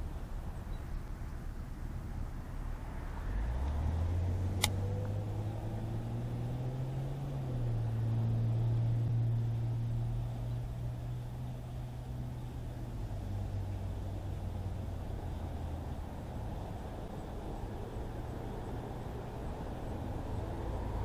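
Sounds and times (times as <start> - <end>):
vehicle engine droning: 0.0 - 21.0
sharp click: 4.6 - 4.8.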